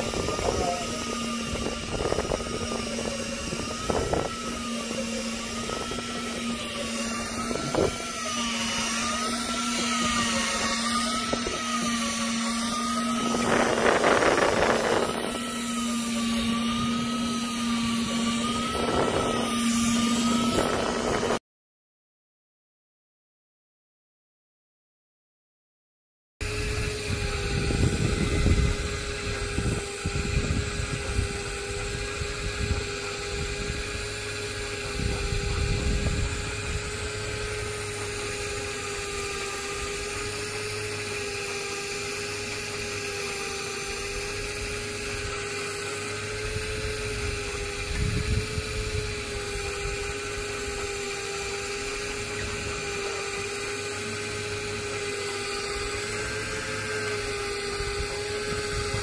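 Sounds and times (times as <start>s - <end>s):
electric fishing reel motor whine: 0.0s - 21.4s, 26.4s - 59.0s
wind buffeting microphone: 0.0s - 21.4s, 26.6s - 38.0s, 46.3s - 50.8s, 57.3s - 59.0s.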